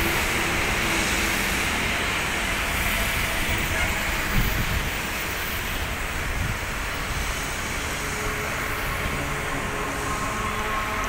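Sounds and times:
jet engines rumbling and hissing: 0.0 - 11.0.

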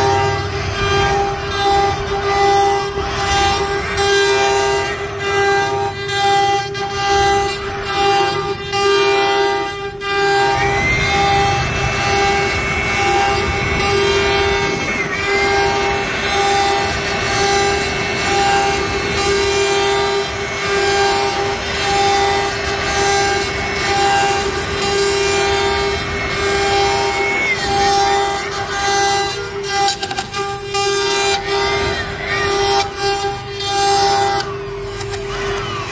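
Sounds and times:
higher whine: 0.0 - 35.9
router spindle whining: 0.0 - 35.9
bit cutting wood: 10.5 - 35.9.

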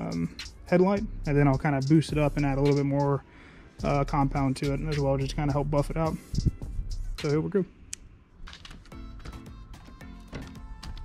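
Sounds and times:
background music with a beat: 0.0 - 7.5, 8.5 - 11.0.

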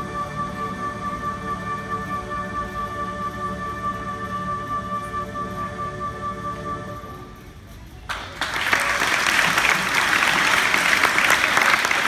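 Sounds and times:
audience applauding: 8.1 - 12.0.

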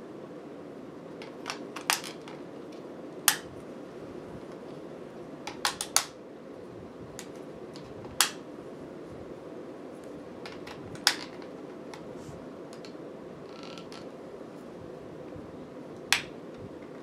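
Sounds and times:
steady low hiss: 0.0 - 17.0
plastic toy clicks: 1.2 - 2.4, 5.5 - 6.1.

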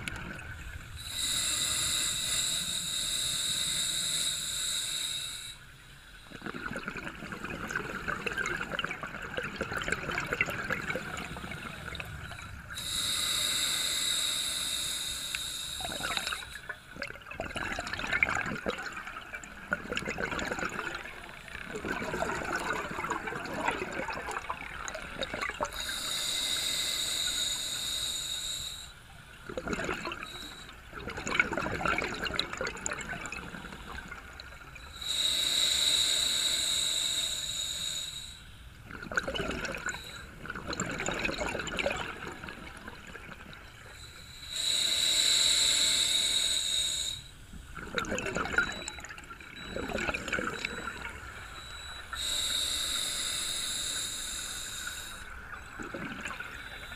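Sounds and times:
bubbling exhaust underwater: 0.0 - 5.6, 6.2 - 56.9
regulator inhale hiss: 0.9 - 6.3, 10.9 - 16.9, 24.8 - 29.4, 30.0 - 30.9, 33.4 - 38.8, 39.8 - 40.3, 43.8 - 47.8, 50.6 - 55.7, 56.3 - 56.9.

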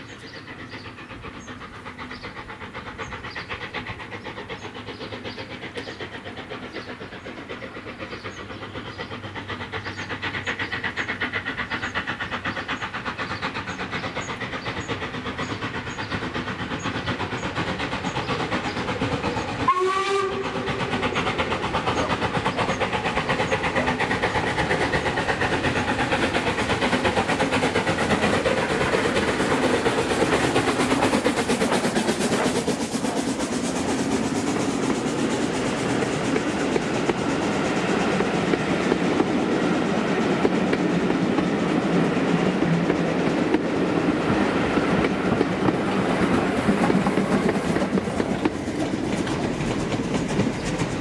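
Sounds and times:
steam locomotive exhaust beats: 0.0 - 51.0
steam whistle blast: 19.7 - 20.7.

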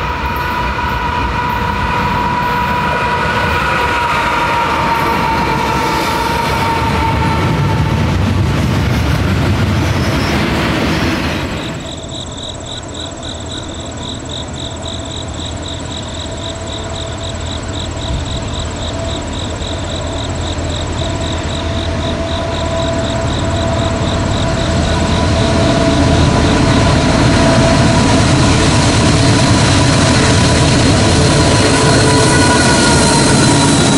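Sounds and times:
distant train low rumble: 0.0 - 33.9
freight train wheels on rail: 0.0 - 33.9
rapid high pulsing sound: 23.3 - 33.9.

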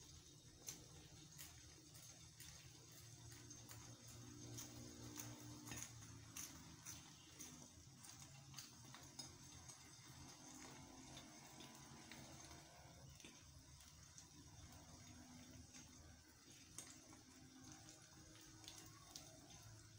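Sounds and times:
egg frying crackles and pops: 0.0 - 19.9.

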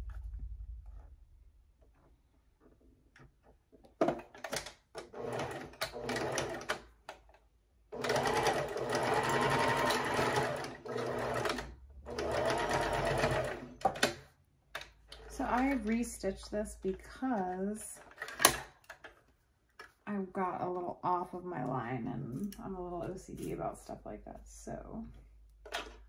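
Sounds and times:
sewing machine stitching: 4.0 - 6.9, 7.9 - 14.2.

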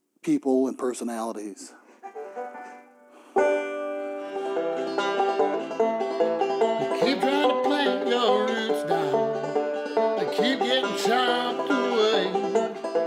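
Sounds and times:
banjo picking: 1.9 - 13.0
man singing: 6.8 - 9.3, 10.2 - 12.8.

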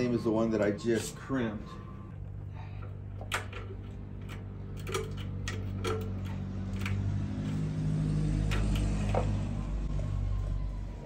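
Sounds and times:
steady low hum: 0.0 - 11.0
sharp metallic clicks: 3.2 - 9.3.

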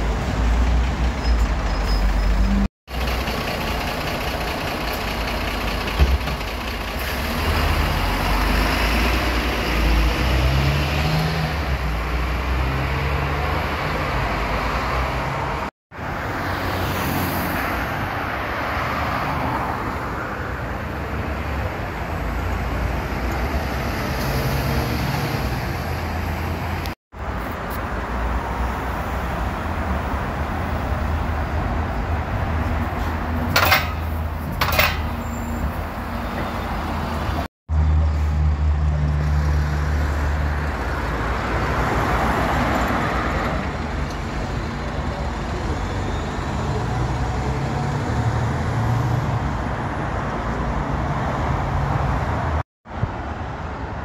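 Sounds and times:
bus engine hum: 0.0 - 10.8
traffic noise: 0.0 - 54.0.

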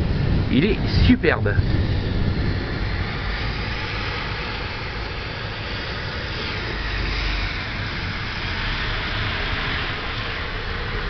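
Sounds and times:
heavy rain hissing: 0.0 - 11.0
rolling thunder: 0.0 - 11.0.

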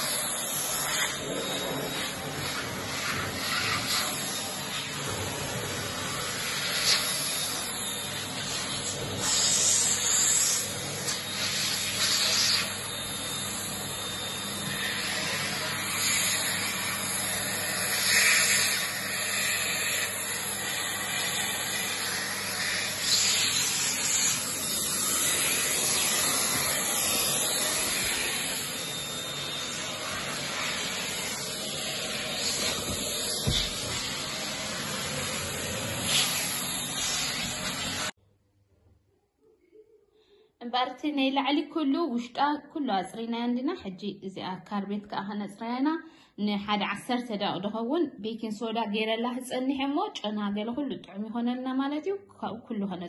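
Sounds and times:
vacuum cleaner running: 0.0 - 38.2.

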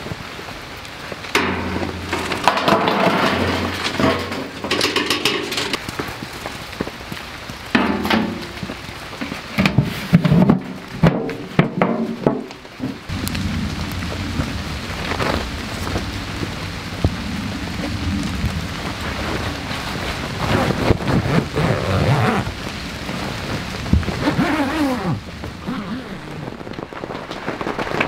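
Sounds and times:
rain hiss: 0.0 - 28.0
charcoal clattering into metal tin: 1.3 - 5.8
steel lid knocking shut: 1.4 - 5.8.

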